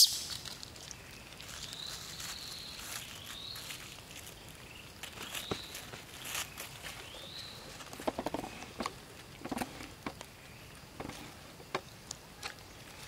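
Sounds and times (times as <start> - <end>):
monkey squeak: 0.0 - 0.3
taps and scuffs on gravel: 5.0 - 9.0.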